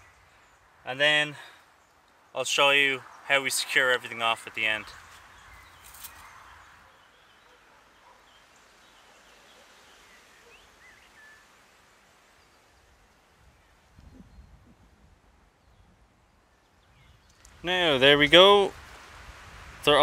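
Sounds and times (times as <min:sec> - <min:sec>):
faint outdoor ambience: 0:00.0 - 0:20.0
faint bird chirps: 0:04.9 - 0:14.9.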